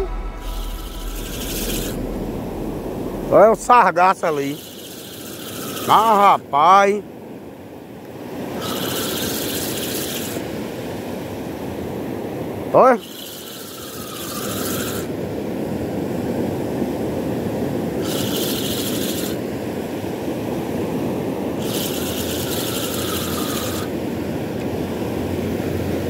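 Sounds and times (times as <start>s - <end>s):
surf washing: 0.0s - 26.0s
fishing reel whirring: 0.4s - 2.2s, 3.3s - 6.4s, 8.4s - 10.5s, 13.0s - 15.2s, 18.0s - 19.5s, 21.6s - 23.9s.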